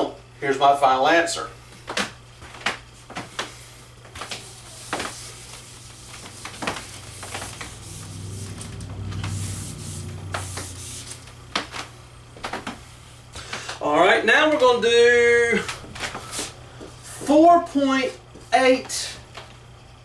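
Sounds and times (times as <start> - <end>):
eraser rubbing on whiteboard: 4.3 - 11.3
low hum: 4.7 - 13.4.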